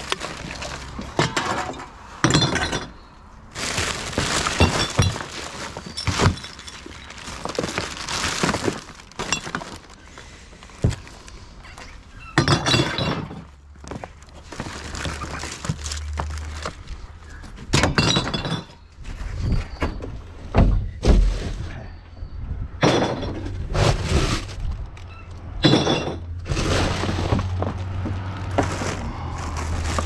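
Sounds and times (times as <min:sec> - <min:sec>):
plastic bags crackling and rustling: 0:00.0 - 0:01.9, 0:03.4 - 0:12.1, 0:13.4 - 0:17.4, 0:26.4 - 0:30.0
containers and cans clattering: 0:00.0 - 0:03.0, 0:03.6 - 0:10.0, 0:25.6 - 0:30.0.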